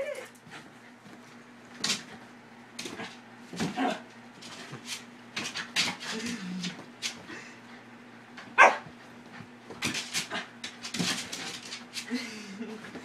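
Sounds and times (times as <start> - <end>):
dog barking loudly: 8.6 - 8.8.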